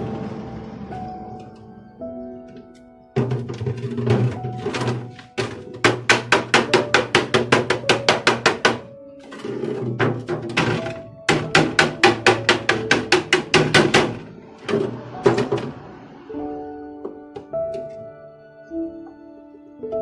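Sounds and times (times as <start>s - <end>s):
hammer tapping sheet metal: 3.2s - 15.8s.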